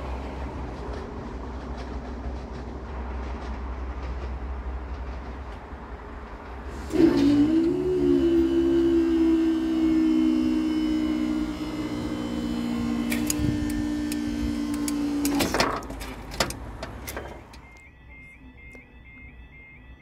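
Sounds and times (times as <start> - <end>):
barrier mechanism humming: 6.7 - 17.9.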